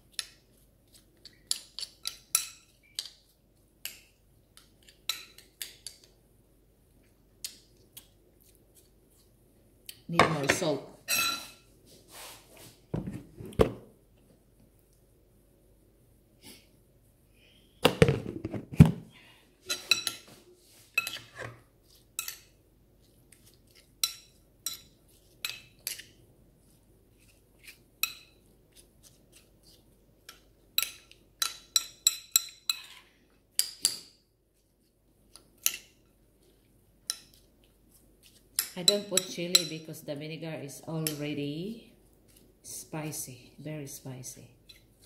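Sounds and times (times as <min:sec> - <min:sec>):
metal spoon scraping ceramic bowl: 0:20.9 - 0:21.6.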